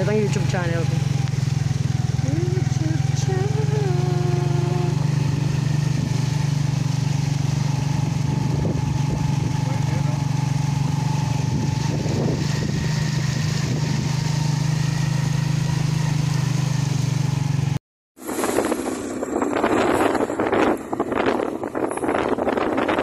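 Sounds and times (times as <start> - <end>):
motorcycle engine running: 0.0 - 23.0
wind buffeting microphone: 7.4 - 9.7, 10.7 - 14.2, 18.3 - 23.0.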